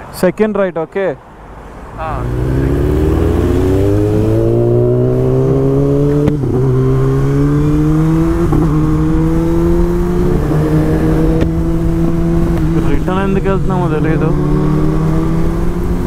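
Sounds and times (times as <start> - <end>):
motorcycle engine accelerating: 2.0 - 16.0.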